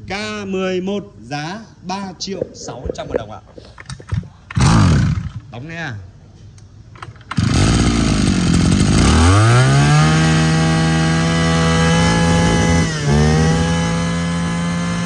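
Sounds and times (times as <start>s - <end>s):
brush cutter engine running: 4.6s - 5.4s, 7.3s - 15.0s.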